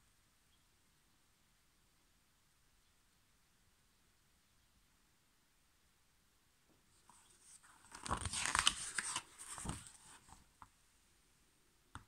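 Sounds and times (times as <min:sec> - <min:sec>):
page turning paper rustling: 0:07.0 - 0:10.6.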